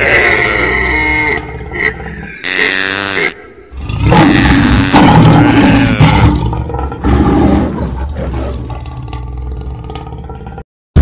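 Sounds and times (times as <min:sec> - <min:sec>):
cartoon lion roaring: 0:03.7 - 0:10.6.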